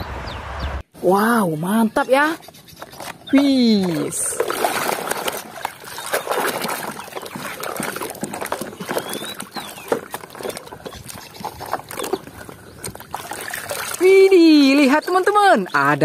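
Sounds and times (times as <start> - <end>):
hand squelching through wet mud: 2.7 - 15.4.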